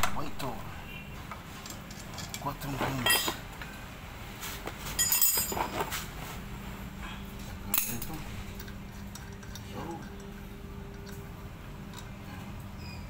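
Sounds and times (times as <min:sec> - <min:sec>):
metallic clinks of scooter parts: 0:05.0 - 0:05.8.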